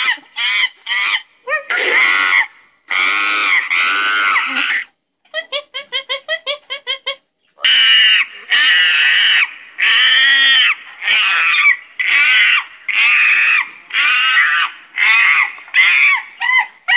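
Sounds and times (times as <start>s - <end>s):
primate screaming calls: 0.0s - 5.0s, 7.6s - 16.9s.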